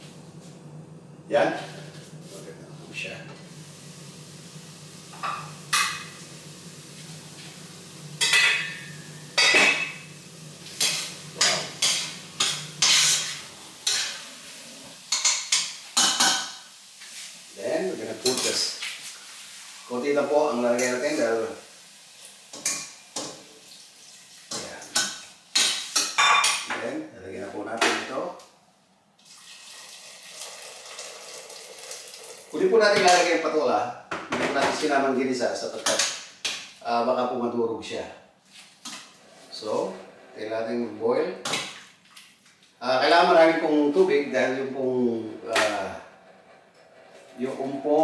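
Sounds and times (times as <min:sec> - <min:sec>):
metal pans clanking: 0:05.1 - 0:06.2, 0:08.2 - 0:14.3, 0:14.9 - 0:16.6, 0:24.5 - 0:26.8.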